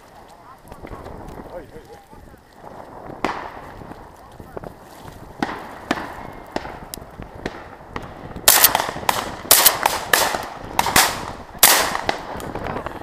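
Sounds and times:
shotgun shots with echo: 0:07.4 - 0:12.3.

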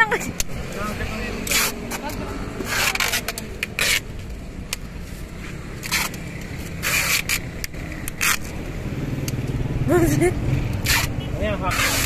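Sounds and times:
packing tape rasping rips: 0:05.8 - 0:08.6.

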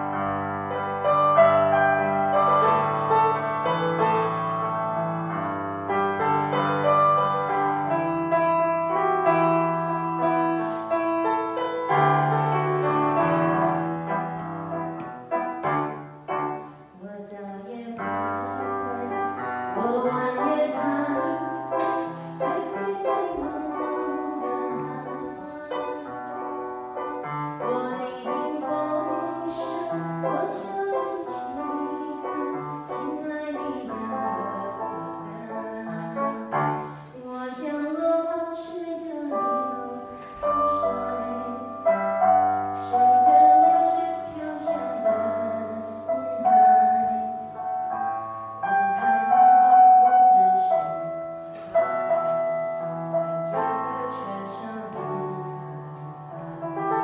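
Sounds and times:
electronic keyboard melody: 0:00.0 - 0:16.9, 0:39.2 - 0:57.0
woman singing: 0:16.9 - 0:26.7, 0:27.6 - 0:47.8, 0:48.6 - 0:57.0.

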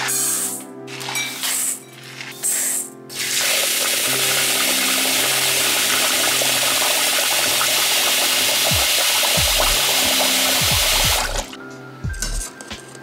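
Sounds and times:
background music: 0:00.0 - 0:13.0
water pouring into steel bowl: 0:03.2 - 0:11.5.

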